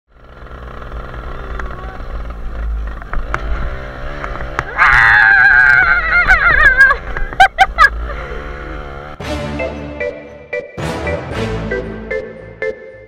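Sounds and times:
motorcycle engine running: 0:00.1 - 0:04.8, 0:05.4 - 0:09.2.

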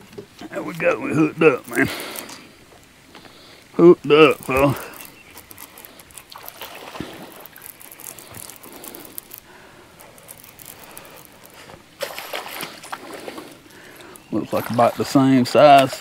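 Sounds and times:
trickling lapping water: 0:00.0 - 0:16.0
small clicks and knocks: 0:04.4 - 0:11.8.

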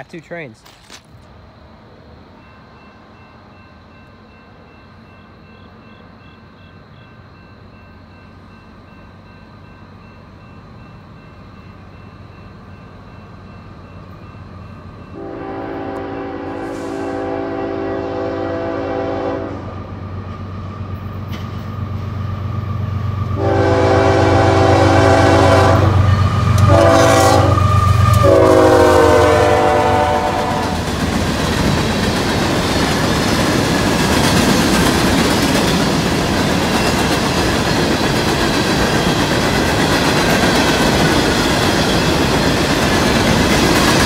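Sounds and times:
train rumble: 0:00.0 - 0:44.0
locomotive horn blasts: 0:15.2 - 0:19.7, 0:23.4 - 0:30.9.

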